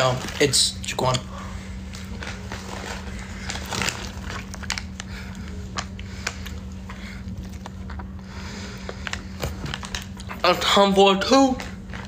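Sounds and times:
steady low hum: 0.0 - 12.0
person chewing: 1.9 - 10.4.

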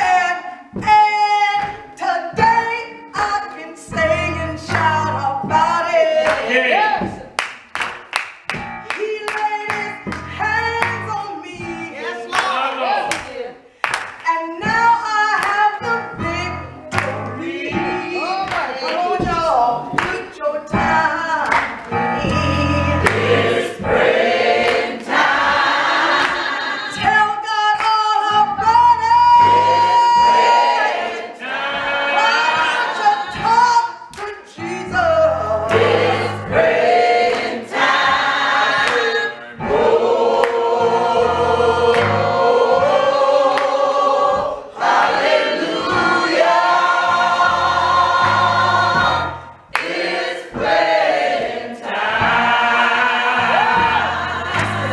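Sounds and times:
gospel choir singing: 0.0 - 7.4, 9.2 - 13.7, 14.6 - 54.9
low keyboard bass notes: 4.0 - 5.8, 9.8 - 11.9, 15.8 - 18.4, 22.0 - 25.7, 28.3 - 30.8, 34.6 - 38.8, 39.5 - 43.4, 44.3 - 49.7, 52.0 - 54.9.

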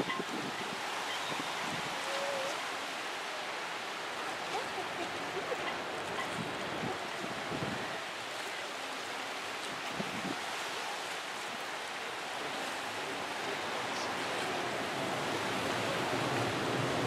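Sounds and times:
wind gusts buffeting microphone: 0.0 - 2.1, 4.6 - 8.1, 9.7 - 10.6
wind and choppy sea: 0.0 - 17.0.

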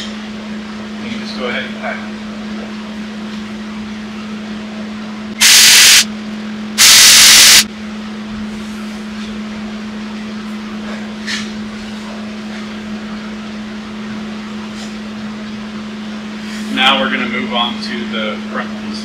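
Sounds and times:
welder arc hissing crackle: 5.4 - 6.1, 6.8 - 7.7.

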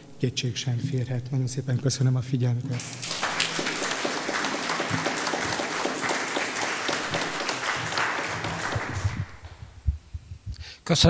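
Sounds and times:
audience applauding: 2.7 - 9.6.

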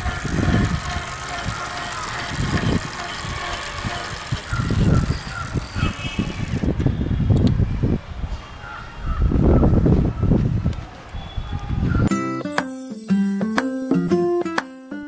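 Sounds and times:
electric motor whine: 0.0 - 6.7.

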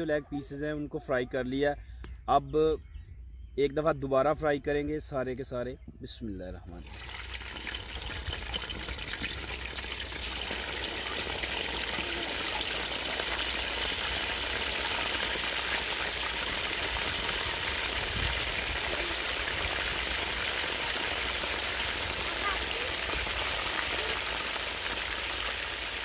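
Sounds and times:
chicken deep-frying in oil: 6.8 - 26.0.

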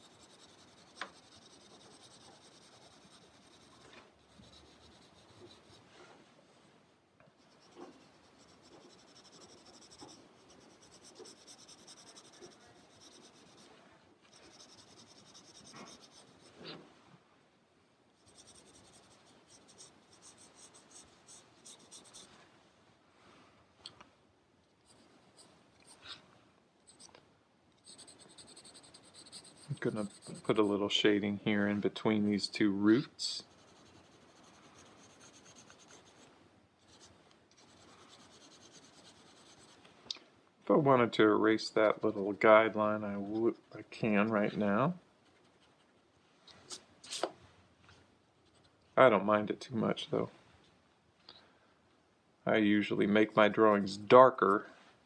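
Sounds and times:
pencil scratching on paper: 0.0 - 5.9, 7.4 - 13.7, 14.3 - 16.8, 18.2 - 22.3, 26.9 - 27.1, 27.8 - 30.8, 33.4 - 39.8, 53.1 - 54.0.

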